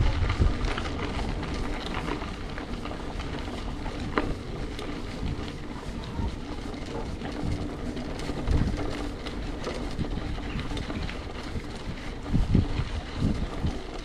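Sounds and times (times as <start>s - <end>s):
bicycle rattles and clicks: 0.0s - 14.0s
bicycle wind and road rumble: 0.0s - 14.0s.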